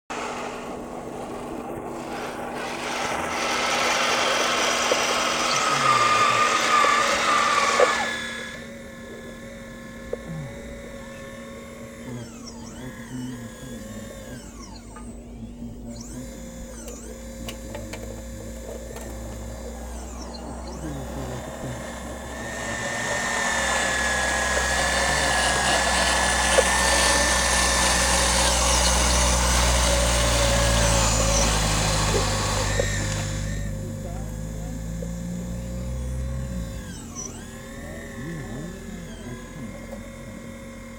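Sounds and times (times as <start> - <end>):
hydraulic pump whining: 0.0 - 40.9.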